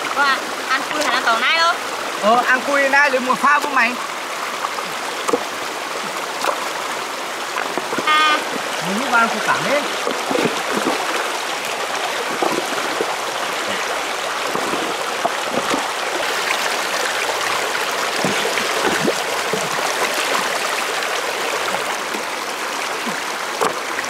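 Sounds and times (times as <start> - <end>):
stream running over rocks: 0.0 - 24.0
hands splashing in water: 9.8 - 20.7.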